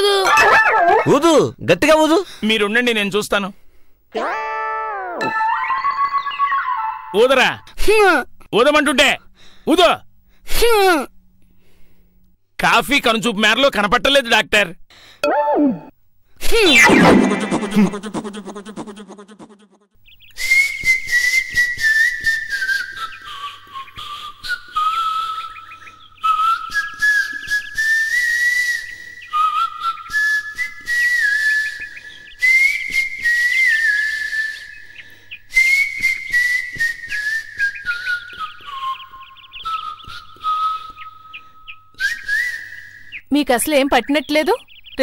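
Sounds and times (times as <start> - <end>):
person whistling a tune: 20.4 - 25.4, 26.2 - 31.8, 32.4 - 34.7, 35.5 - 43.1.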